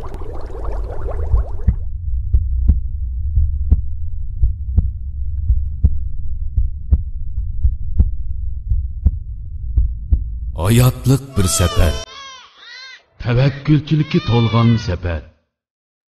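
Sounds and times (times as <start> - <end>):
low steady hum: 0.0 - 11.2
heartbeat thuds: 1.1 - 10.6.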